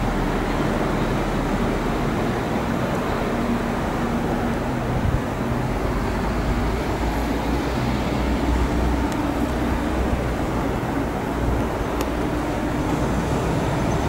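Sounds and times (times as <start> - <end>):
train engine hum: 0.0 - 14.0
train rolling rumble: 0.0 - 14.0.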